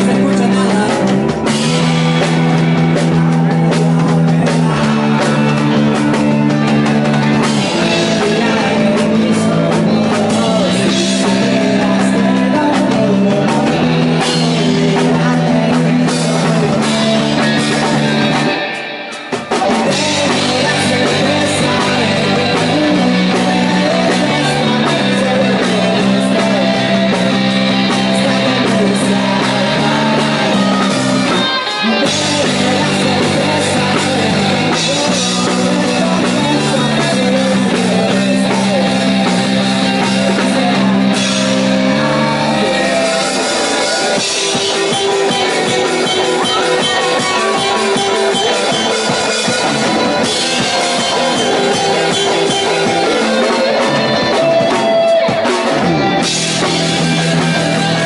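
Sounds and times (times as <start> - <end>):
bass guitar: 0.0 - 58.0
drums: 0.0 - 58.0
electric guitars: 0.0 - 58.0
person singing: 0.0 - 58.0.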